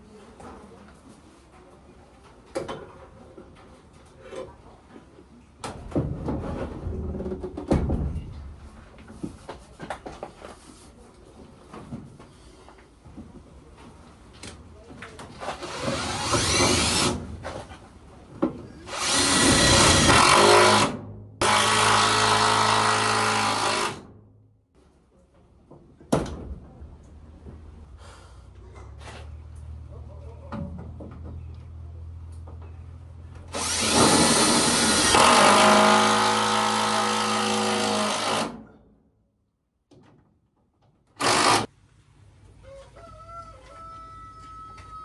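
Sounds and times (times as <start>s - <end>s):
cordless drill driving a screw: 15.6s - 17.1s, 18.9s - 24.0s, 33.6s - 38.5s, 41.2s - 41.7s.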